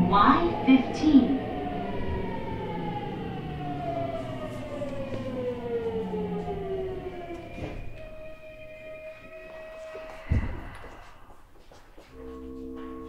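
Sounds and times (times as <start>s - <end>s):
train motor whine falling in pitch: 0.0s - 11.1s
rumble of train wheels: 0.0s - 13.0s.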